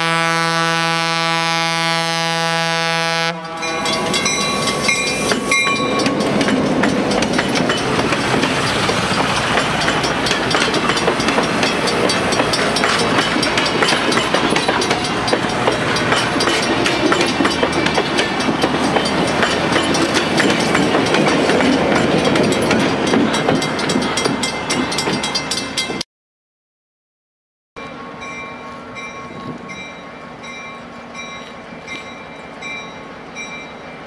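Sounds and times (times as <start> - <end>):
train cars rolling past: 3.3 - 26.0, 27.8 - 34.0
wheels clicking over rail joints: 3.4 - 26.0.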